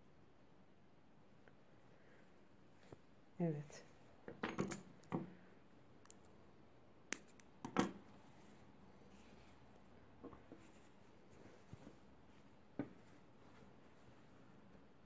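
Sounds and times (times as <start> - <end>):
scissors snipping yarn: 7.1 - 7.8.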